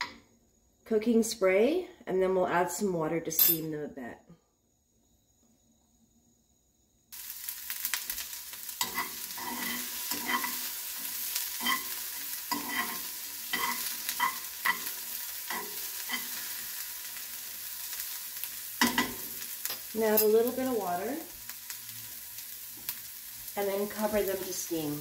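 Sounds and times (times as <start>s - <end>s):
vegetables sizzling in frying pan: 7.1s - 25.0s
utensil scraping pan: 8.8s - 16.4s.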